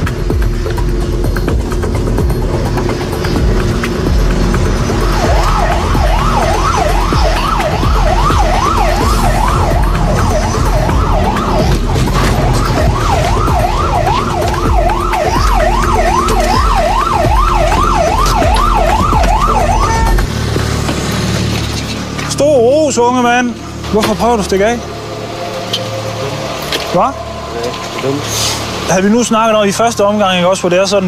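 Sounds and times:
car engine running: 0:00.0 - 0:29.5
police siren yelping: 0:00.3 - 0:21.6.

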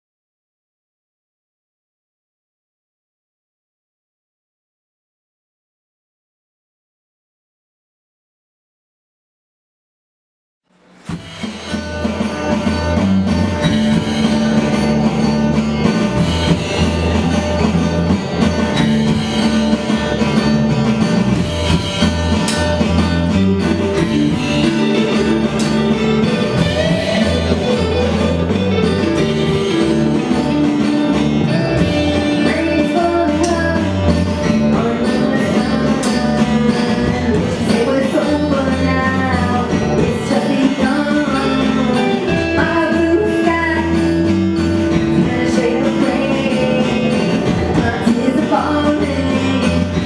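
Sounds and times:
drum kit: 0:10.7 - 0:50.0
bass guitar: 0:10.8 - 0:50.0
electric guitars: 0:10.9 - 0:50.0
woman singing: 0:32.1 - 0:44.2, 0:45.1 - 0:50.0.

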